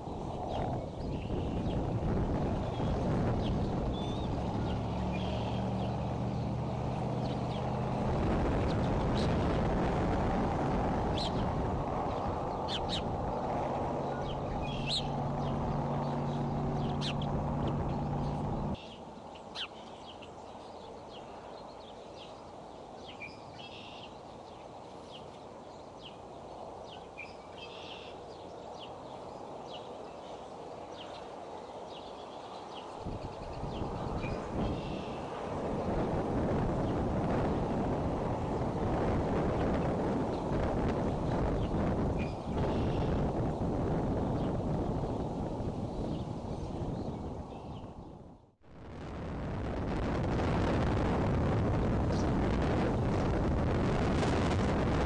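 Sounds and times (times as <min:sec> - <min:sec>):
steady low hum: 0:00.0 - 0:19.2
loud low rumble: 0:01.9 - 0:18.8
high bird chirps: 0:05.1 - 0:06.1, 0:12.1 - 0:13.1, 0:14.0 - 0:20.3.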